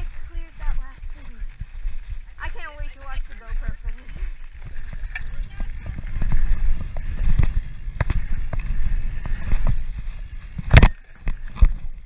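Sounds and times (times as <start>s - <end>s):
bike rattling and clicking: 0.0s - 12.0s
wind rumbling on microphone: 3.6s - 12.0s.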